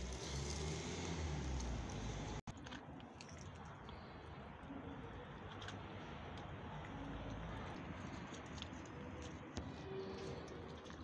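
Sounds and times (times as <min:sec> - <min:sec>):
cats crunching dry kibble: 0:07.8 - 0:11.0.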